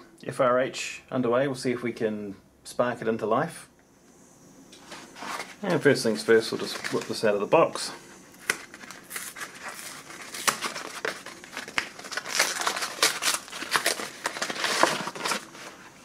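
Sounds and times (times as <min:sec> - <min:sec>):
cardboard scraping and rustling: 0:04.8 - 0:07.3, 0:08.3 - 0:16.0.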